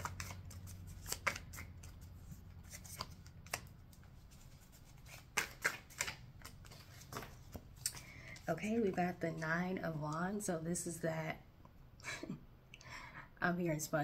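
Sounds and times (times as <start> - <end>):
cards being shuffled: 0.0 - 9.4.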